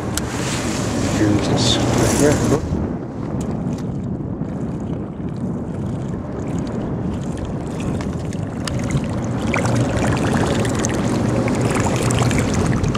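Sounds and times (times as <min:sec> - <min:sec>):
choppy water against boat: 0:00.0 - 0:12.9
lure splashy gurgle: 0:03.3 - 0:12.9.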